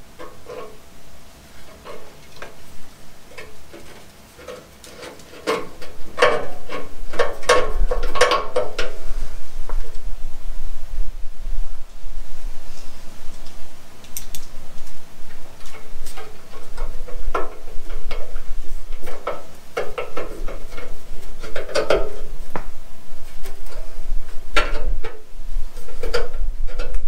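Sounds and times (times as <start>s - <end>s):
license plate hardware clicks and knocks: 3.3s - 9.0s, 15.6s - 22.3s.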